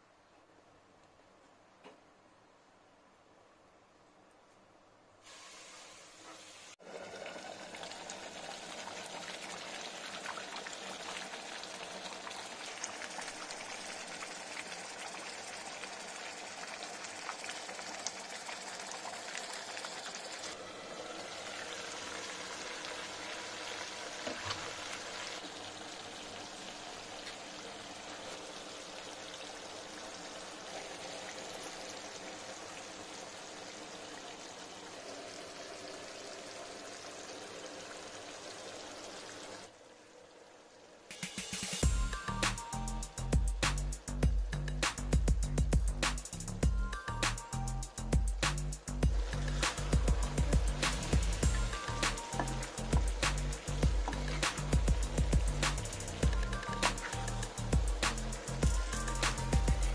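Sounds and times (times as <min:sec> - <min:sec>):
curry bubbling and spitting: 0:49.1 - 0:57.2.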